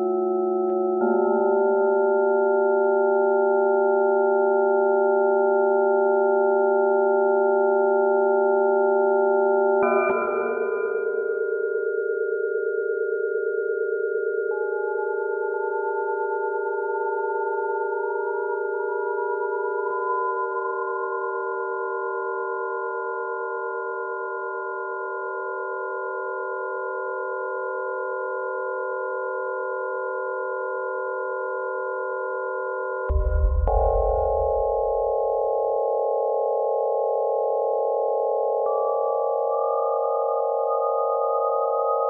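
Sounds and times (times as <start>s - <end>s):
electronic sine tone drone: 0.0s - 42.0s
high tone gliding upward: 33.1s - 35.4s.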